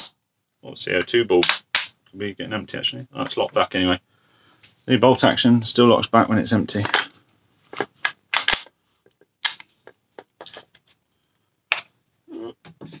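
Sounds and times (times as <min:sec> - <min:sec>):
air rifle parts clicking: 0:07.7 - 0:10.9.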